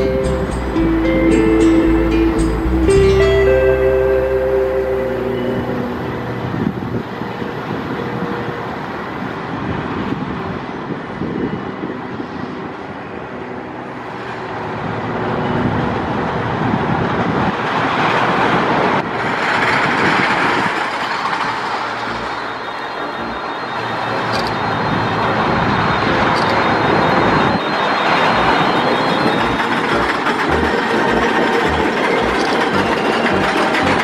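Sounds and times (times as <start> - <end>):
road vehicle passing: 0.0 - 34.0
roller coaster rumbling and clattering: 13.8 - 34.0.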